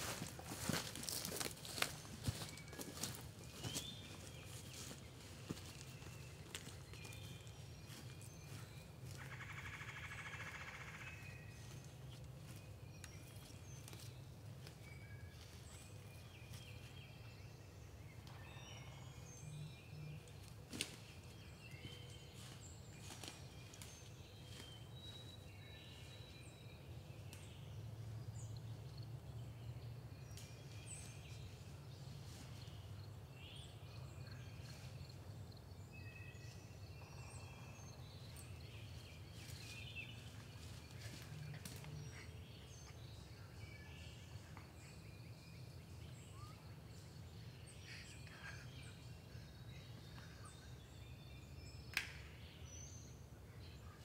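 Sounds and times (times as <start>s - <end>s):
songbird chirps and calls: 0.1s - 54.0s.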